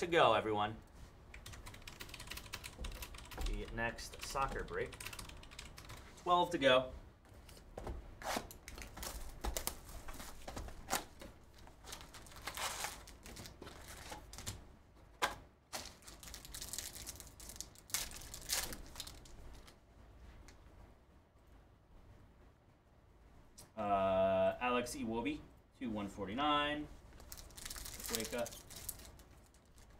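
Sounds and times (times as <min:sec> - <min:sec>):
foil wrappers crinkling: 0:08.6 - 0:14.6, 0:15.7 - 0:19.7, 0:27.2 - 0:29.9.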